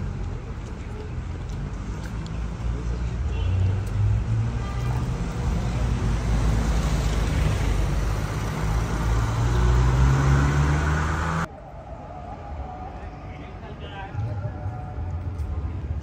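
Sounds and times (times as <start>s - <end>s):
quiet street ambience: 0.0s - 16.0s
road traffic rumble: 0.0s - 16.0s
vehicle engine rising in pitch: 6.1s - 11.5s.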